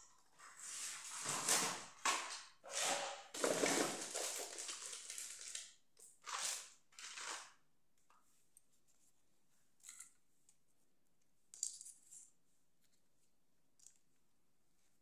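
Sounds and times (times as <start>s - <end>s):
rustling crinkling noise: 0.4s - 5.8s.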